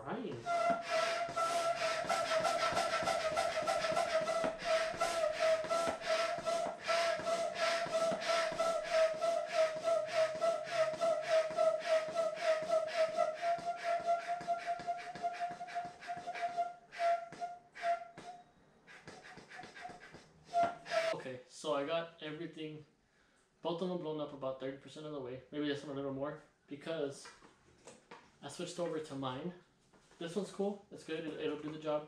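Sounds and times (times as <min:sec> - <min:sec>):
high whistling squeal: 0:00.3 - 0:21.2
air pump strokes: 0:00.4 - 0:18.3, 0:18.9 - 0:21.2.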